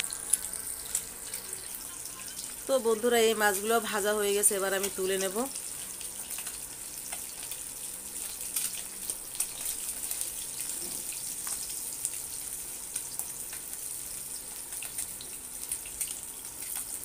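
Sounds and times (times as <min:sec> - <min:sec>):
hot oil sizzling in a pan: 0:00.0 - 0:17.0
spatula crackles and clicks: 0:04.8 - 0:17.0.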